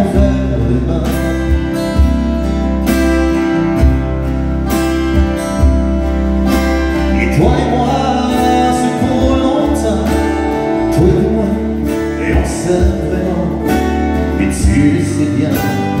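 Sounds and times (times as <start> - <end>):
man singing: 0.0 - 2.3, 6.9 - 16.0
strummed acoustic guitar: 0.0 - 16.0.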